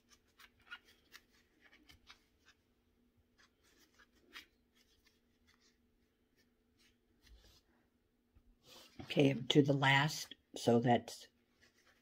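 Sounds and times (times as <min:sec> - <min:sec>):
crochet hook rustling yarn: 0:00.0 - 0:07.8, 0:08.4 - 0:09.6, 0:11.3 - 0:12.0.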